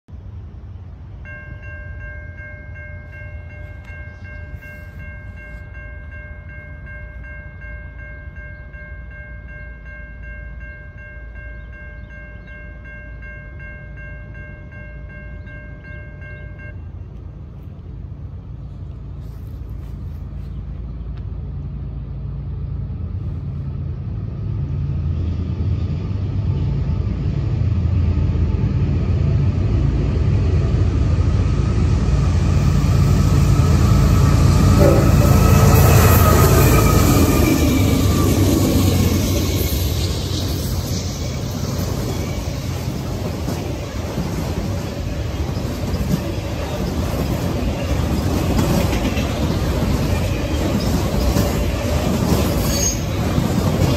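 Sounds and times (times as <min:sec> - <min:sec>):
train rumble: 0:00.1 - 0:53.9
locomotive air horn chord: 0:34.0 - 0:38.4.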